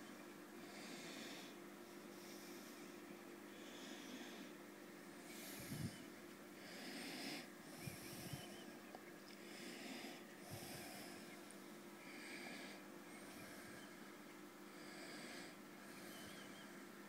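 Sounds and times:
steady low hum: 0:00.0 - 0:17.0
soft breathing: 0:00.6 - 0:17.0.

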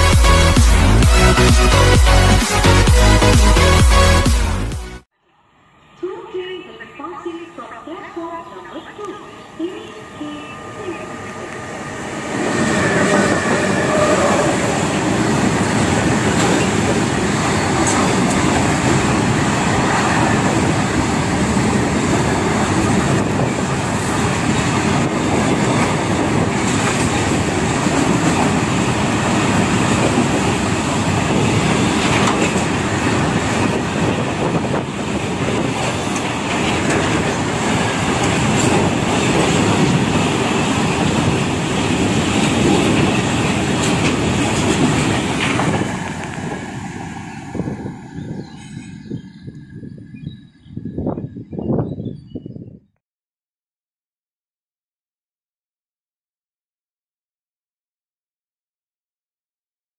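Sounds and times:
freight train passing: 0:00.0 - 0:51.8
wheels clicking over rail joints: 0:25.6 - 0:33.3.

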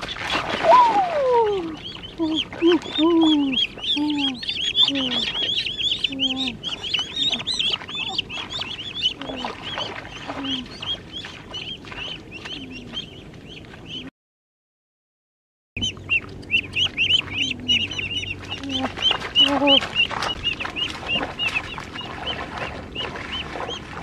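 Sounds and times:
ducklings peeping shrilly: 0:00.0 - 0:14.1, 0:15.8 - 0:24.0
lower falling call: 0:00.6 - 0:08.4.

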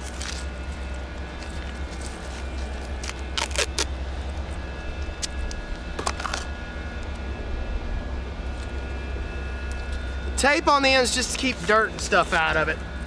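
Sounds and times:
steady low hum: 0:00.0 - 0:13.0
tape ripping off a roll: 0:01.4 - 0:03.9.

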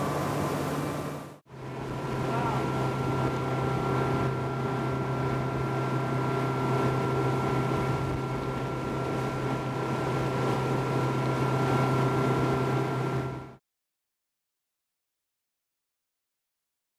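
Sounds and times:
outboard motor droning: 0:00.0 - 0:13.6
water rushing off hull: 0:00.0 - 0:13.6.

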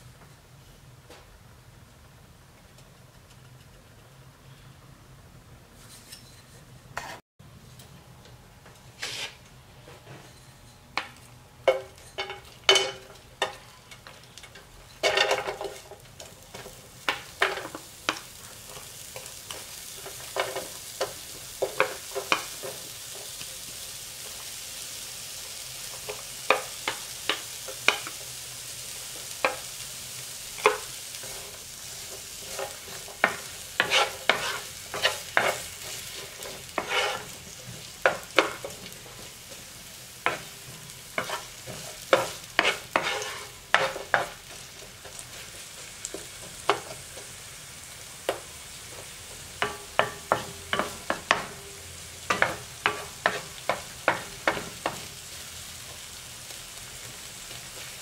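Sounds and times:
onion sizzling in oil: 0:08.9 - 0:09.4, 0:10.9 - 0:58.0
wooden spatula knocking pan: 0:49.6 - 0:51.6, 0:52.3 - 0:55.1.

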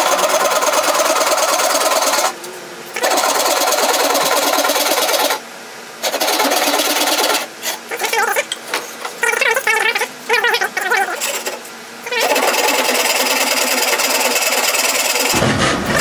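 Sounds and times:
hand saw rasping through wood: 0:00.0 - 0:02.4, 0:03.0 - 0:05.4, 0:06.0 - 0:07.9, 0:11.2 - 0:11.6, 0:12.2 - 0:15.4.

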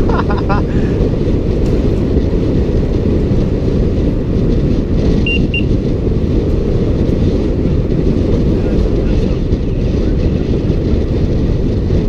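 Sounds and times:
tyre noise on concrete road: 0:00.0 - 0:12.0
wind buffeting microphone: 0:00.0 - 0:12.0
short high beeps: 0:05.3 - 0:05.7.

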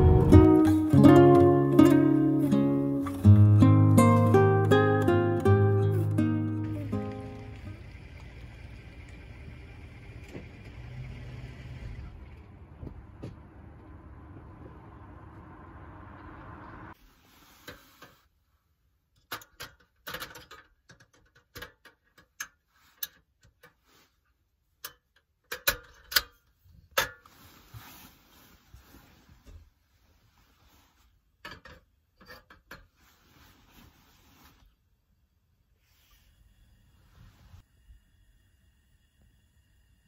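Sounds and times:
low rumble: 0:00.0 - 0:00.7, 0:11.7 - 0:17.0.

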